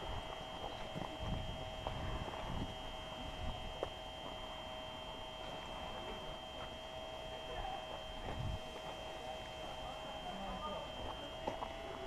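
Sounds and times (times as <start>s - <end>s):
heavy low footstep: 0.0s - 4.5s
steady high-pitched hum: 0.0s - 12.0s
footsteps on gravel: 11.0s - 12.0s.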